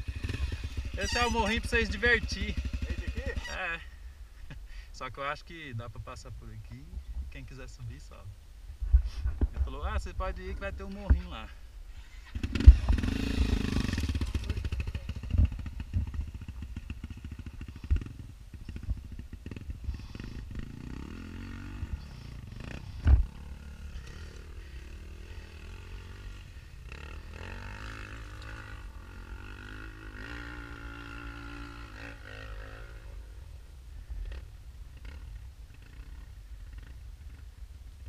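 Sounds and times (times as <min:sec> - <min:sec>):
dirt bike engine revving: 0:00.0 - 0:03.8, 0:12.0 - 0:33.3.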